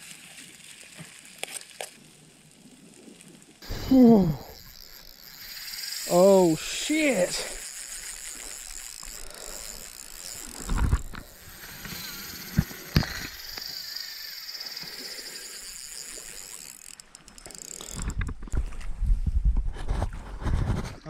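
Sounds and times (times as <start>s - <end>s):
fishing reel clicking and ratcheting: 3.6s - 18.5s.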